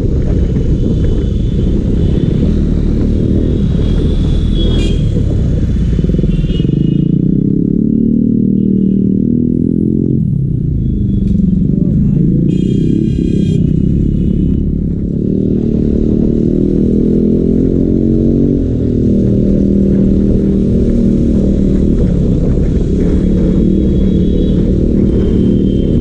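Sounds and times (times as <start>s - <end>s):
motorcycle engine running: 0.0s - 26.0s.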